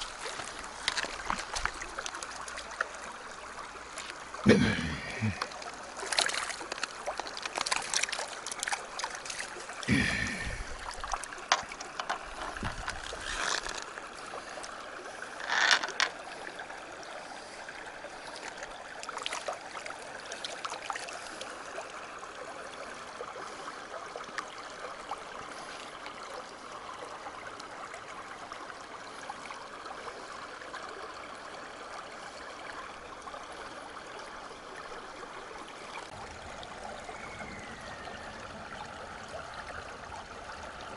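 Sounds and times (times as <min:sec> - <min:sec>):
river running over stones: 0:00.0 - 0:40.9
landing net splashing in water: 0:06.0 - 0:09.8.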